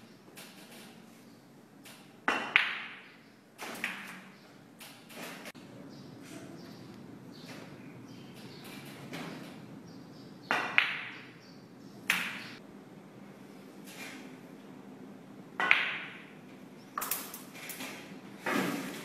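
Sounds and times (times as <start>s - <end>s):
snooker balls clacking: 10.5s - 11.2s, 15.6s - 16.3s.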